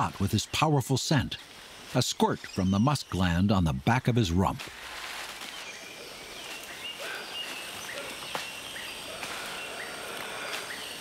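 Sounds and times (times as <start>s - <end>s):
steady background hiss: 0.0s - 11.0s
high chirping calls: 1.9s - 4.4s, 5.5s - 11.0s.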